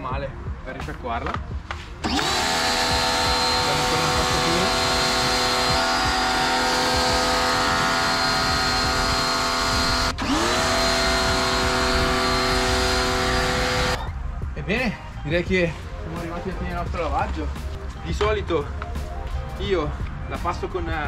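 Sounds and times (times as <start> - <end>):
pressure washer pump whining: 2.0 - 14.0.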